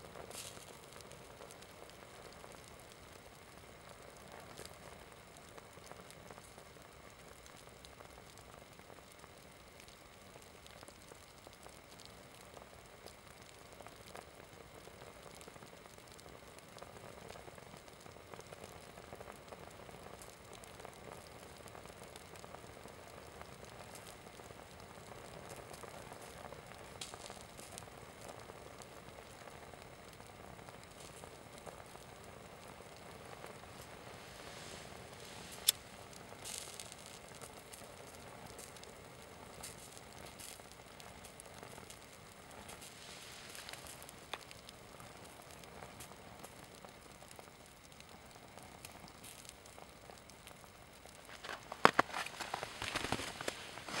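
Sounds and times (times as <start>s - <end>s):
flames hissing and crackling: 0.0s - 54.0s.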